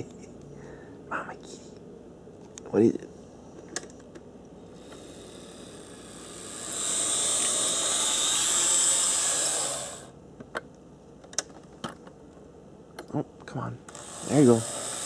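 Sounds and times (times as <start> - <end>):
model locomotive whirring on rails: 4.8 - 10.1, 13.9 - 15.0.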